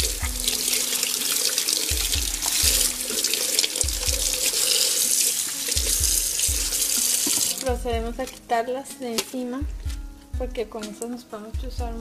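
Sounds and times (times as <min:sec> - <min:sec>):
tap water running into sink: 0:00.0 - 0:07.7
background music with beat: 0:00.0 - 0:12.0.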